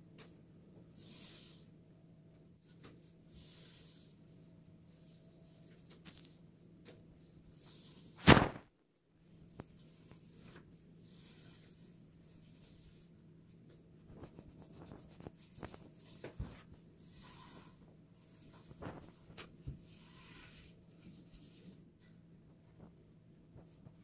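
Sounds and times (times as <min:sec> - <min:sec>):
sharp knock: 0:08.2 - 0:08.6
pastry brushing and rustling: 0:09.4 - 0:22.2.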